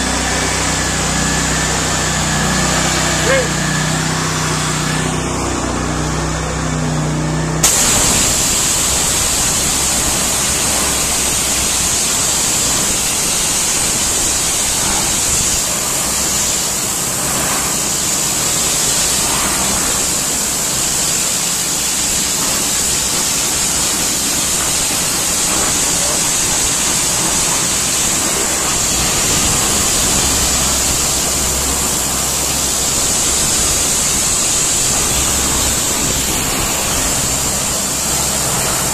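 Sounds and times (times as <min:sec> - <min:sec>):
water jet hissing against a wall: 0:00.0 - 0:05.1, 0:07.6 - 0:38.9
pressure washer engine drone: 0:00.0 - 0:38.9.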